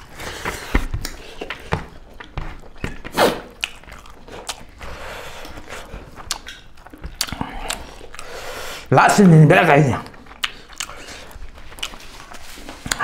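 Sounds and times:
chewing: 0.0 - 13.0
wet squishing of food: 0.0 - 13.0
lip smacks: 0.7 - 8.9, 10.0 - 13.0.

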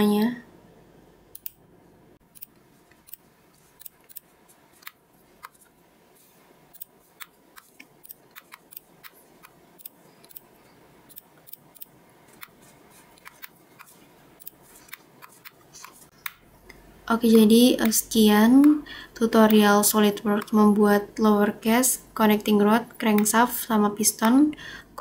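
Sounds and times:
background hiss: 0.0 - 25.0
computer mouse clicks: 1.3 - 1.6, 2.3 - 3.2, 3.8 - 5.7, 6.7 - 10.5, 11.1 - 18.0.

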